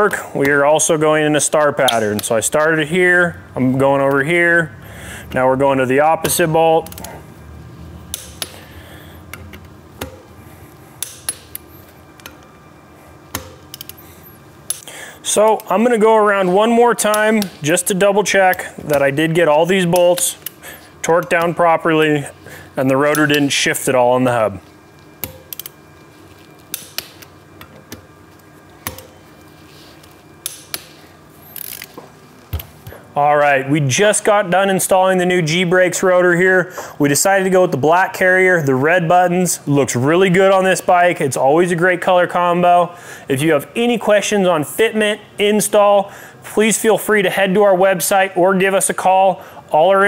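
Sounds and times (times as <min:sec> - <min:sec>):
torque wrench clicking: 0:08.1 - 0:08.6, 0:13.3 - 0:15.7, 0:25.2 - 0:25.8, 0:31.5 - 0:32.6
torque wrench clicking on bolts: 0:13.3 - 0:14.0, 0:25.2 - 0:25.8, 0:31.5 - 0:31.9.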